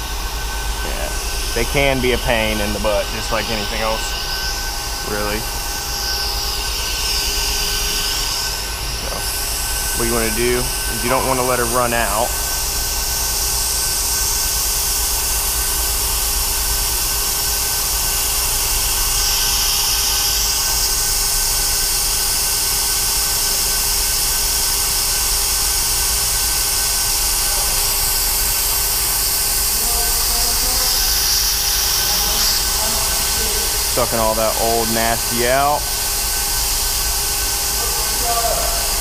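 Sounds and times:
brake bleeder hissing: 0.0s - 39.0s.

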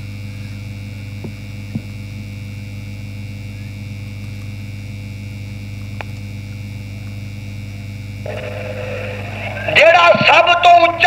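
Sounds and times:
electrical mains hum: 0.0s - 11.0s
high-pitched whine: 8.2s - 11.0s.

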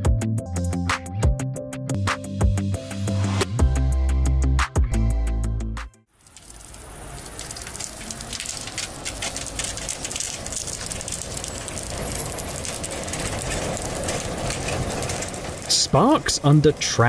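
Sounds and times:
music: 0.0s - 6.1s
tram wheels crackling on rails: 6.1s - 17.0s.

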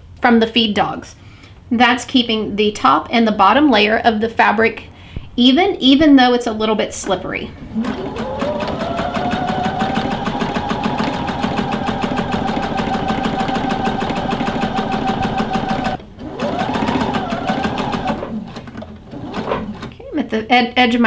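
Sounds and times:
sewing machine stitching: 7.5s - 20.0s.

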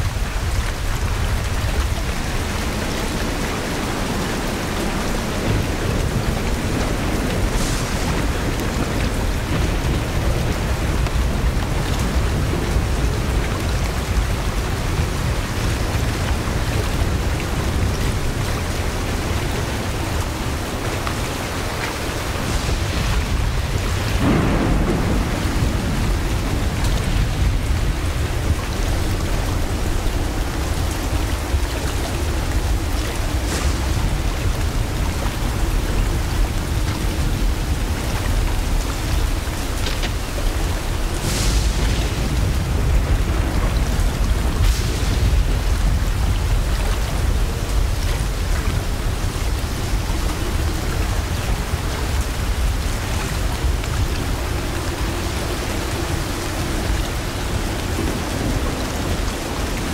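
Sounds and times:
heavy rain on water and foliage: 0.0s - 59.9s
low rumble of thunder: 0.0s - 59.9s.

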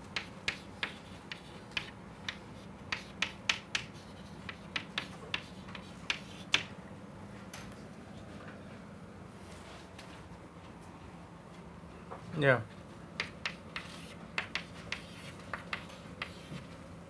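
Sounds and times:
chalk clicking on blackboard: 0.1s - 6.7s, 13.2s - 16.6s.

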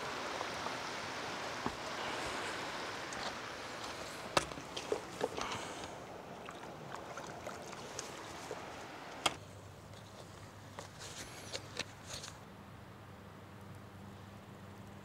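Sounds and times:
mountain stream rushing: 0.0s - 9.3s.

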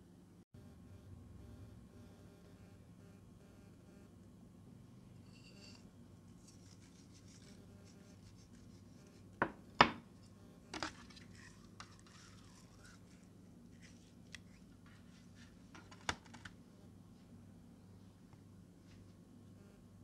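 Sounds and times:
faint steady hum: 0.0s - 20.0s
glass bowl knocking on surface: 9.4s - 10.1s.

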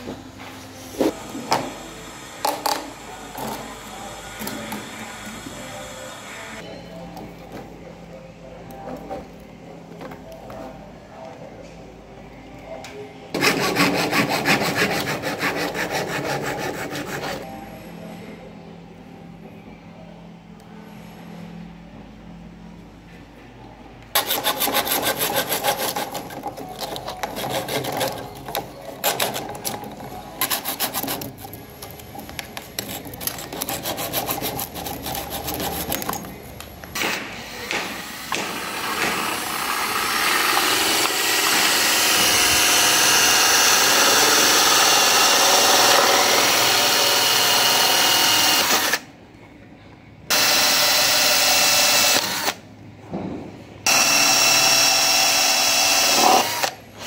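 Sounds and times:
hacksaw cutting plastic conduit: 24.2s - 36.2s
cordless drill boring plastic: 38.8s - 49.0s, 50.3s - 52.6s, 53.9s - 56.8s.

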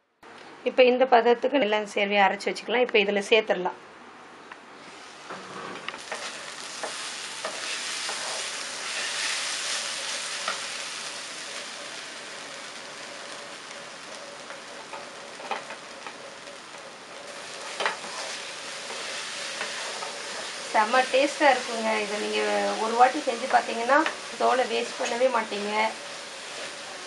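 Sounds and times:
spatula scraping and tapping pan: 5.3s - 9.8s, 14.5s - 16.8s, 17.6s - 20.6s
food sizzling in oil: 6.0s - 27.0s.

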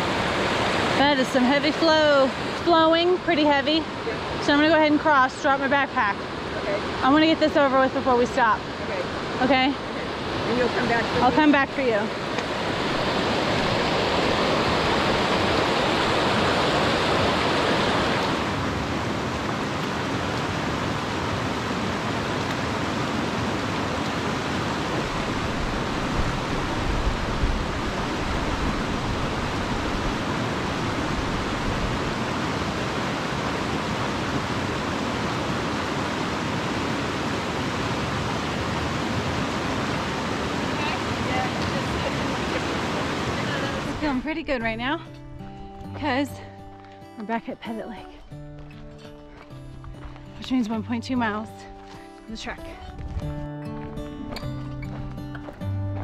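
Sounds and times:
whitewater rushing over rocks: 0.0s - 44.3s.

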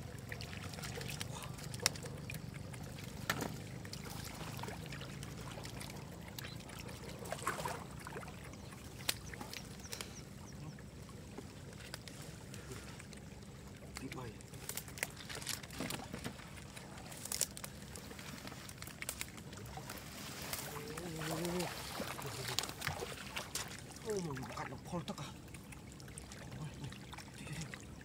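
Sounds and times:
steady low hum: 0.0s - 28.0s
hands splashing in muddy water: 0.4s - 8.3s, 14.7s - 24.7s
grass rustling: 14.0s - 24.2s.

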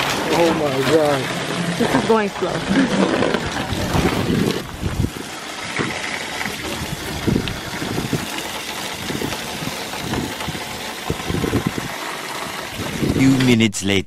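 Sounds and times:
hose water splashing on tarp: 0.0s - 13.3s
wind on microphone: 3.4s - 6.0s, 6.6s - 8.4s, 9.0s - 12.0s, 12.7s - 13.4s.

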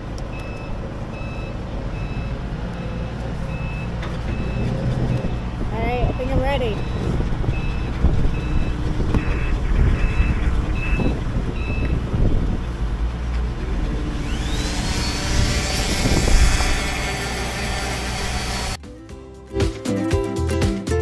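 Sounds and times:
reversing alarm beeps: 0.3s - 12.0s
low rumble: 0.7s - 18.8s
electric orbital sander whining: 13.6s - 18.8s.

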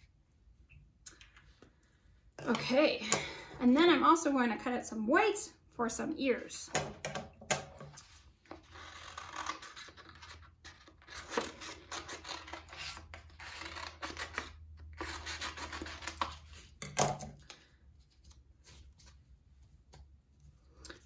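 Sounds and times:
scissors snipping paper: 8.8s - 16.6s.

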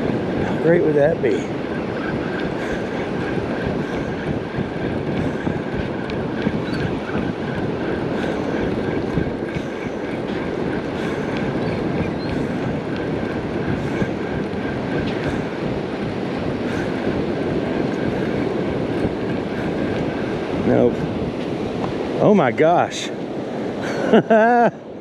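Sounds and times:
ocean surf: 0.0s - 25.0s
wind buffeting microphone: 0.0s - 25.0s.

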